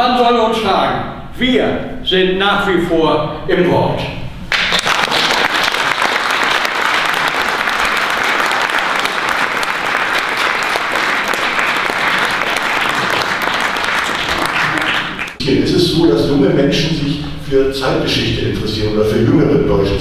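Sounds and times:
audience applauding: 0:04.5 - 0:15.4.

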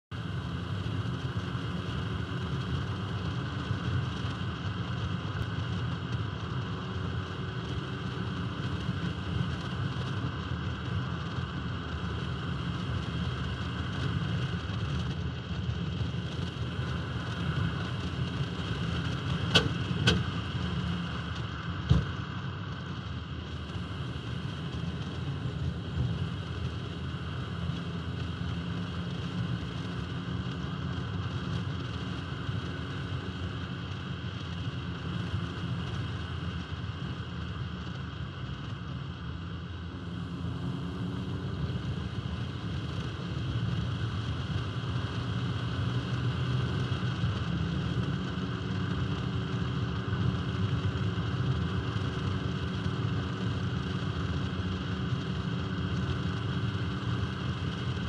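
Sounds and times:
car running: 0:00.0 - 0:58.0
wind and tyre noise: 0:00.0 - 0:58.0.

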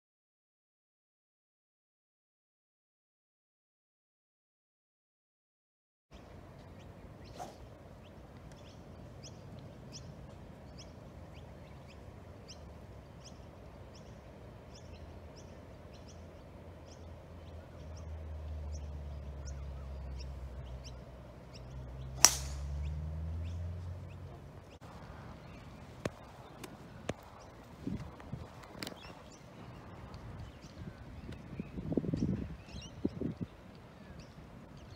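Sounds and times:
bird chirping: 0:06.2 - 0:27.6
golf driver striking ball: 0:22.2 - 0:22.9.

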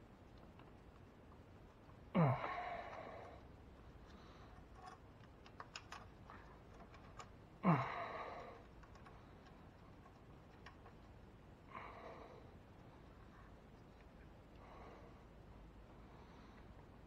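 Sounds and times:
man sighing: 0:02.2 - 0:03.3, 0:07.6 - 0:08.6
small parts clicking: 0:02.5 - 0:11.2.

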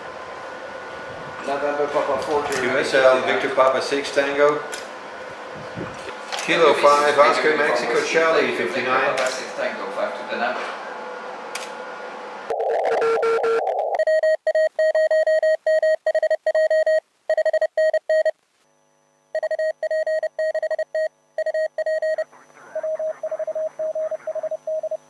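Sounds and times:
morse code tone: 0:12.5 - 0:18.3, 0:19.4 - 0:25.0
radio hiss: 0:22.2 - 0:24.8.

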